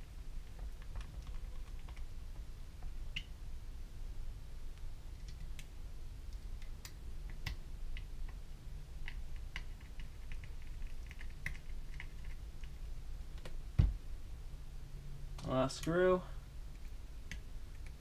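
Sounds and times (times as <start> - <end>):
faint low hum: 0.0 - 18.0
small clicks and ticks: 0.4 - 2.1, 9.0 - 12.8.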